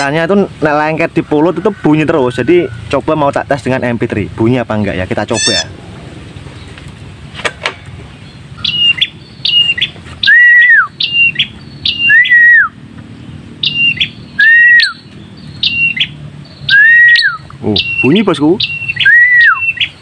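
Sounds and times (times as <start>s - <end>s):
bird call recording: 0.0s - 4.0s, 4.7s - 20.0s
bird whistling: 5.3s - 5.8s, 8.6s - 12.8s, 13.6s - 20.0s.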